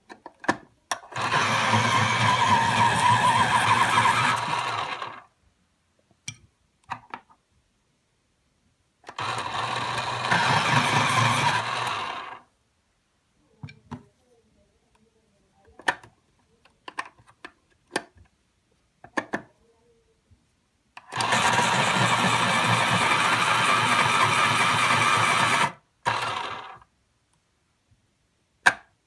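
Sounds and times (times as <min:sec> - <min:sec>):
electric pencil sharpener grinding: 0:01.1 - 0:05.3, 0:09.1 - 0:12.4, 0:21.1 - 0:26.8.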